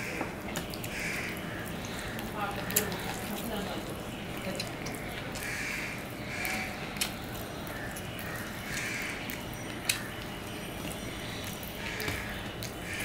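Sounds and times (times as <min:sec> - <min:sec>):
wet mouth and handling sounds: 0:06.4 - 0:11.7.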